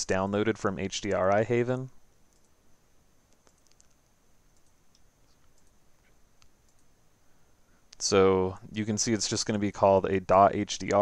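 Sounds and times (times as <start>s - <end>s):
faint high whine: 0.0s - 11.0s
computer mouse clicks: 2.3s - 2.6s, 3.3s - 6.9s.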